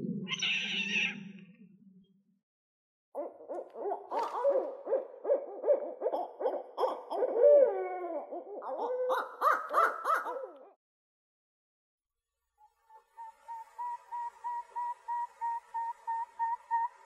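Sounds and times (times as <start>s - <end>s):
owl low calling: 0.2s - 1.2s
owl hoots and cackling calls: 0.3s - 1.2s, 3.2s - 10.7s.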